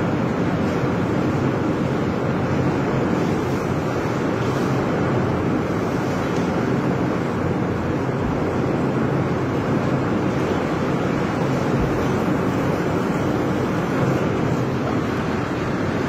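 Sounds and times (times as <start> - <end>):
heavy rain pouring: 0.0 - 16.0.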